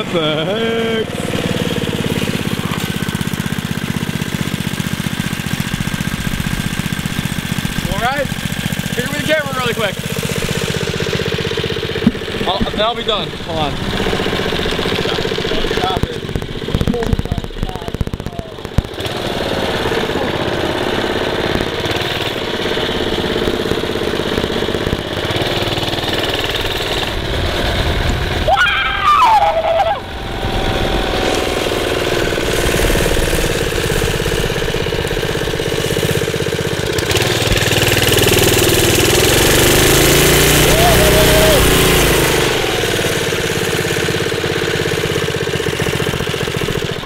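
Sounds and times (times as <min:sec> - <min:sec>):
minibike engine running: 0:00.0 - 0:47.0.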